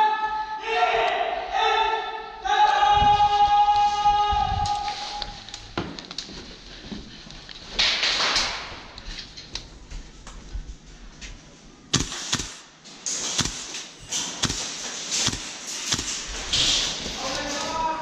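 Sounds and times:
sharp cracks and knocks: 7.7 - 9.0, 11.9 - 17.6.

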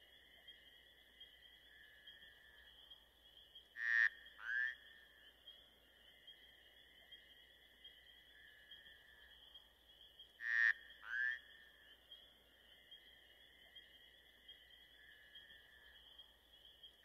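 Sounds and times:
night animal chorus trilling: 0.0 - 17.0.

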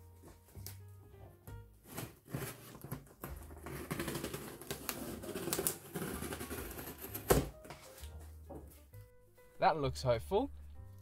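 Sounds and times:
packing tape being slit and peeled: 1.8 - 8.2.

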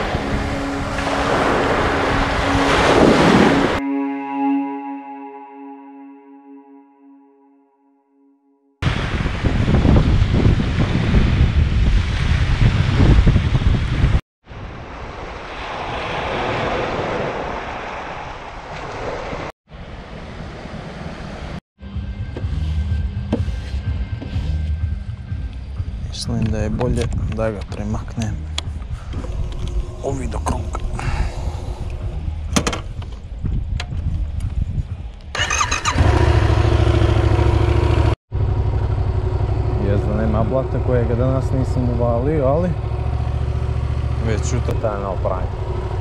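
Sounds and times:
small waves washing ashore: 0.0 - 3.8, 14.5 - 21.6
wind buffeting microphone: 8.8 - 19.4, 25.9 - 36.1
motorcycle starter cranking: 35.4 - 36.6
motorcycle engine idling: 35.4 - 44.3.

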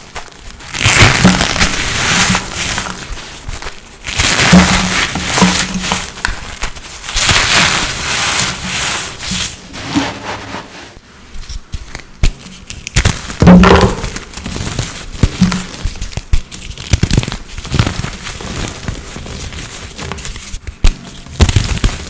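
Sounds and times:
powder blocks crunching: 0.0 - 9.6.

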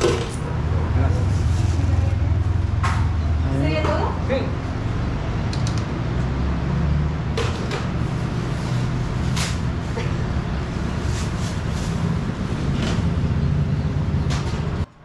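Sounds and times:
vehicle engine rumbling: 0.0 - 14.9.

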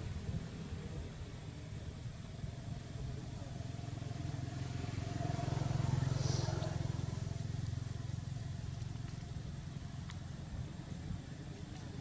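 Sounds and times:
vehicle engine running: 2.7 - 10.8.

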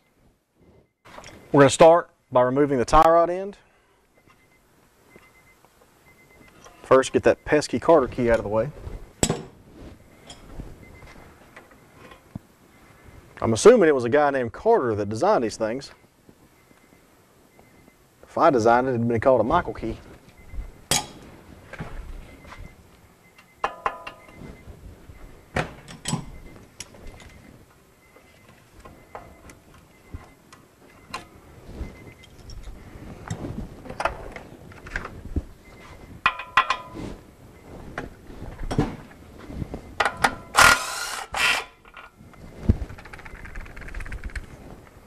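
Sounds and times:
cordless power tool running: 40.6 - 41.6.

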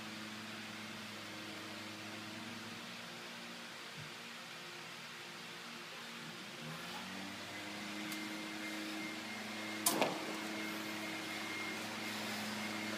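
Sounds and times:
motor humming: 6.6 - 12.9.

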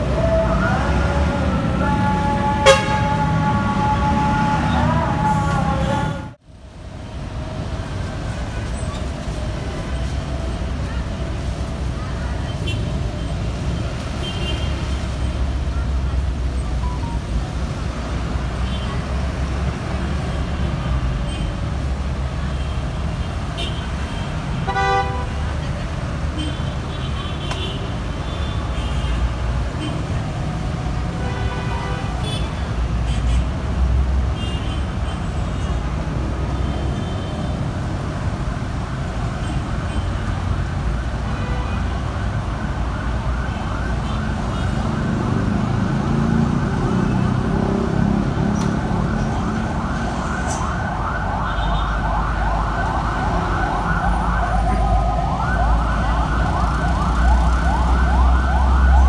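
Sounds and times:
street traffic: 0.0 - 59.0
vehicle siren yelping: 42.3 - 59.0.

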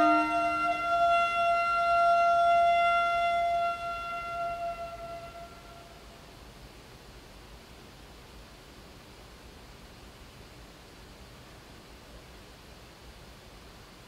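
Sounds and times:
low bowed cello note: 0.0 - 2.0
high held cello note: 0.0 - 5.6.

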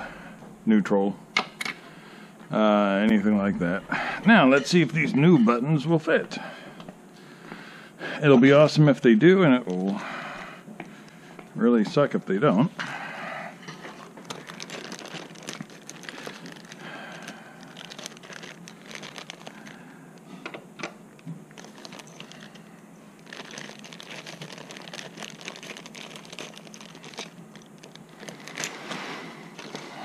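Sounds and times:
plastic bags crinkling: 13.6 - 20.3, 21.1 - 30.0.

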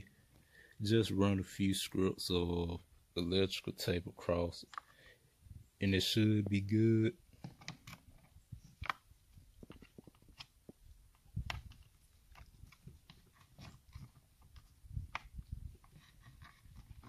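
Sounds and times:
handling clicks and knocks: 7.3 - 17.0.

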